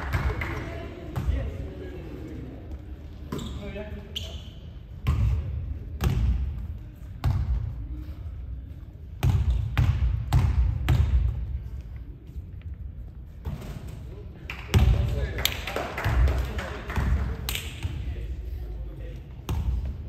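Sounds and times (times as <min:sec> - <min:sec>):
basketball bouncing on court floor: 0:05.0 - 0:07.7, 0:09.2 - 0:11.6.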